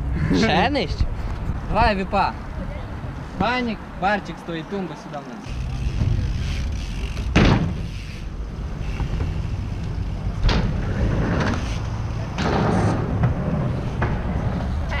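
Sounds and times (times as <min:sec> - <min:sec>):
bike landing thuds on concrete: 0:07.2 - 0:07.9.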